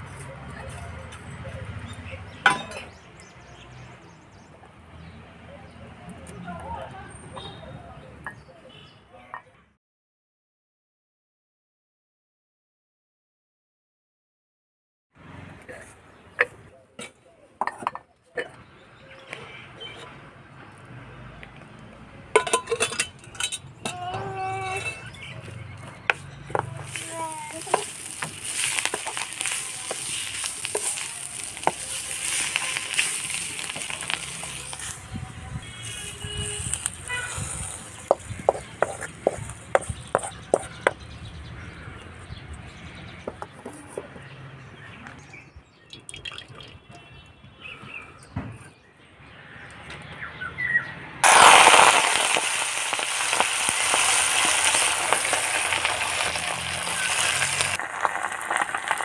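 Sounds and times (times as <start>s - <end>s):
wooden spatula scraping a pan: 26.1s - 35.0s, 35.7s - 41.0s
leaves sizzling loudly in hot oil: 26.5s - 41.0s, 51.2s - 59.0s
oil sizzling in a pan: 26.8s - 35.0s, 51.2s - 59.0s
spatula knocking on a pan: 38.1s - 41.0s.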